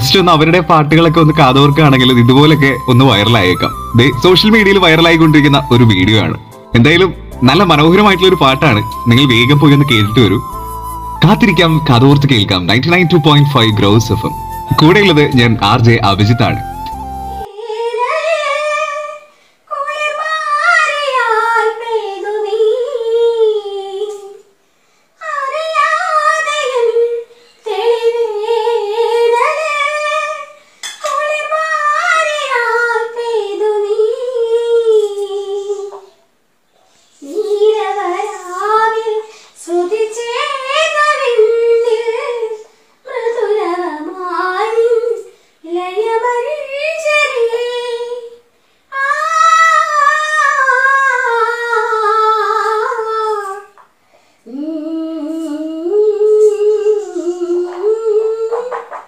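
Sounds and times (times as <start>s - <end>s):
woman singing unaccompanied: 17.2s - 24.5s, 25.2s - 36.2s, 37.1s - 53.8s, 54.4s - 59.0s.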